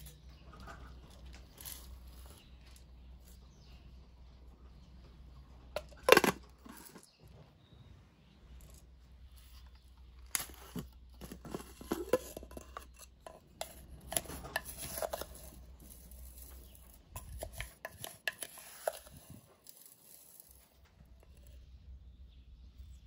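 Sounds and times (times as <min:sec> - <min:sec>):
wooden spoon scraping a glass jar: 0:09.7 - 0:20.6.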